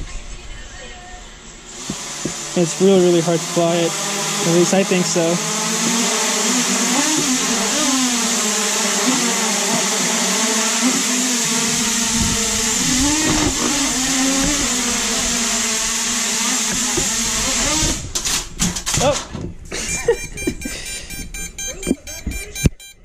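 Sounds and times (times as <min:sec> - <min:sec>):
drone propellers whirring: 0:01.6 - 0:18.3, 0:19.9 - 0:23.0
drone crashing clattering knocks: 0:12.1 - 0:15.9.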